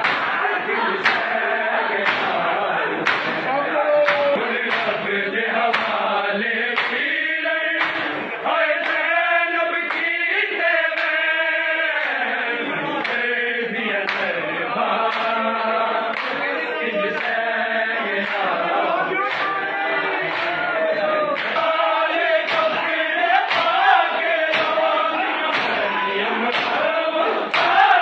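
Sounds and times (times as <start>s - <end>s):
hands slapping chests: 0.0s - 0.4s, 1.0s - 1.4s, 2.0s - 5.0s, 5.7s - 6.0s, 6.8s - 7.1s, 7.8s - 9.0s, 9.9s - 10.1s, 14.1s - 14.4s, 16.1s - 16.4s, 19.2s - 20.7s, 21.3s - 26.8s, 27.4s - 28.0s
men chanting in unison: 0.0s - 28.0s.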